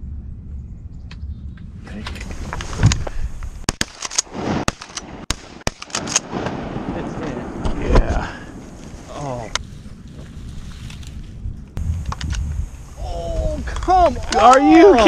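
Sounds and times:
rustle of hunters in grass: 8.1 - 15.0.

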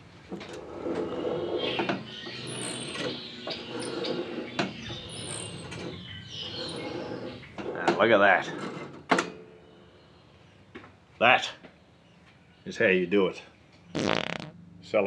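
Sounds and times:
birds chattering and chirping: 0.8 - 8.4.

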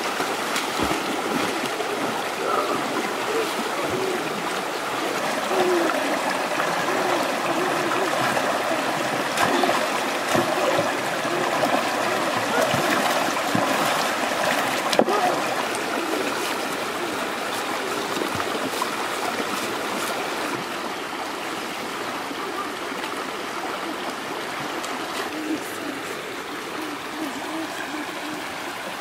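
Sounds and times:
water splashing by hand: 0.0 - 20.7
river water rushing over rocks: 0.0 - 29.0.

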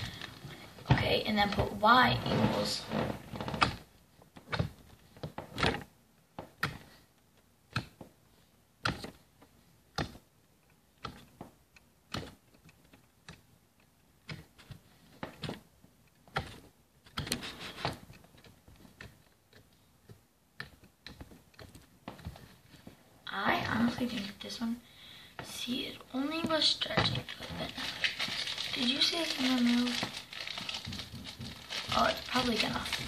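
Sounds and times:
slime squishing: 25.4 - 33.0.

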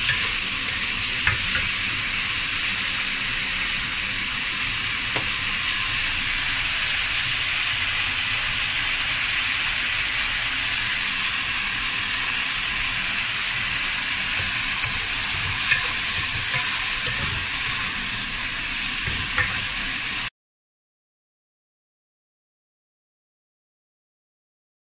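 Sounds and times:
vegetables sizzling in hot oil: 0.0 - 20.3
spatula scraping pan: 13.5 - 20.0.

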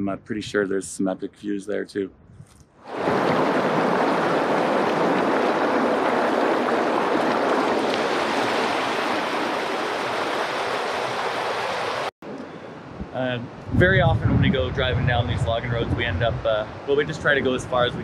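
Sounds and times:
creek water rushing: 2.9 - 12.1.

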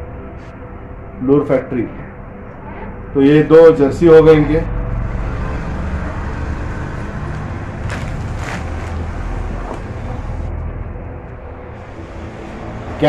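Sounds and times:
plastic wrapping crinkling: 7.3 - 9.4.

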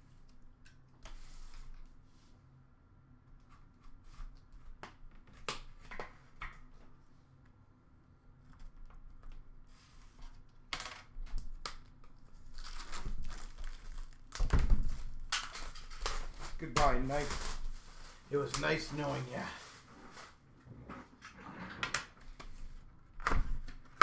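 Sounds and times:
plastic shrink wrap crinkling: 11.4 - 19.8.

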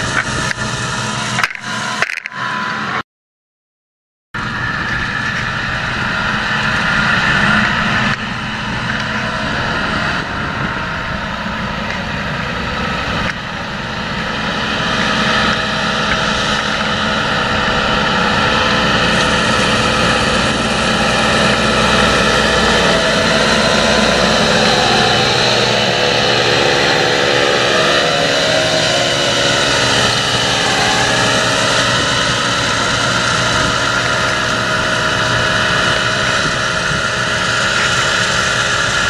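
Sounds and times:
tractor diesel engine under load: 0.0 - 3.0, 4.4 - 39.0.

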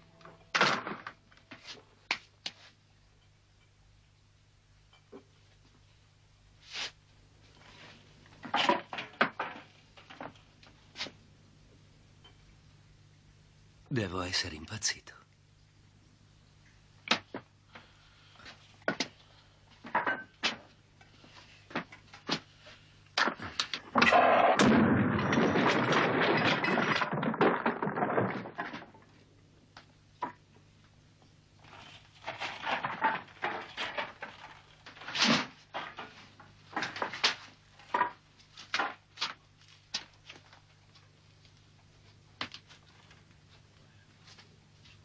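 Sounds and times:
low steady hum: 0.0 - 45.0
objects knocking and clattering: 8.4 - 10.5, 18.4 - 20.8, 23.2 - 29.3, 31.6 - 39.4
objects knocking and clicking: 23.2 - 29.2.

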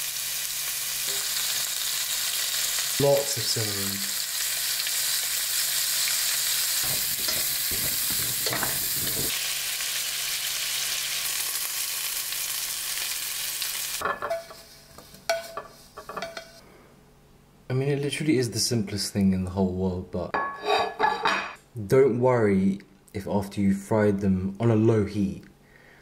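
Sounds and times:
carrots sizzling in a pan: 0.0 - 16.1
utensil scraping and stirring: 6.8 - 9.3.

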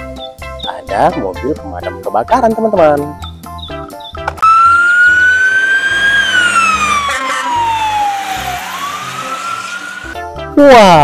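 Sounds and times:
fire truck siren wailing: 4.4 - 10.2.

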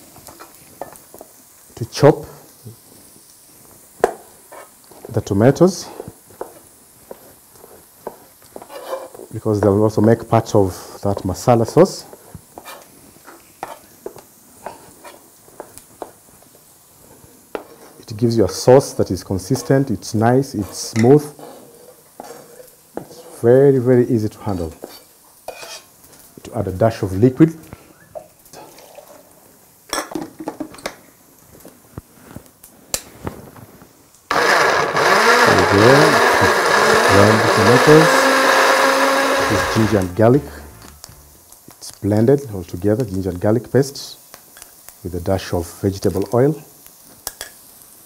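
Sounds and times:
blender running: 34.3 - 41.4.

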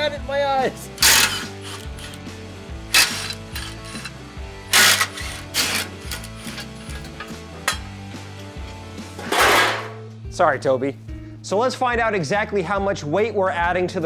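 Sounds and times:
background music: 0.0 - 14.0
impact driver bursts: 1.0 - 2.2, 2.9 - 3.8, 4.7 - 6.2.

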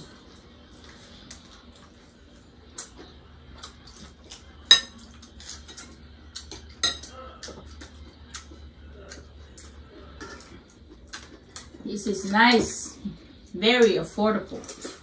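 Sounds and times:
cutlery clinking against dishes: 4.3 - 7.7, 10.2 - 10.6.

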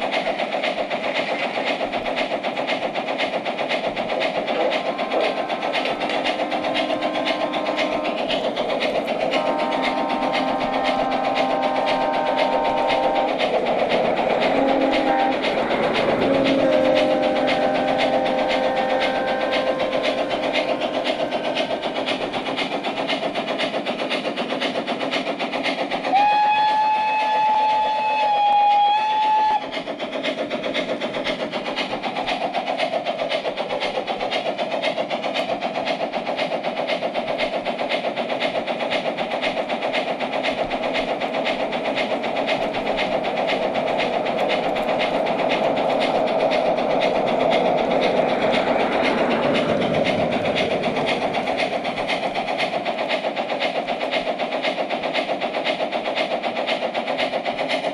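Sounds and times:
model steam locomotive chuffing: 0.0 - 57.9
wheels clattering on track: 0.0 - 57.9
train whistle blast: 9.4 - 13.4, 14.4 - 15.5, 16.1 - 20.4, 26.1 - 29.7.

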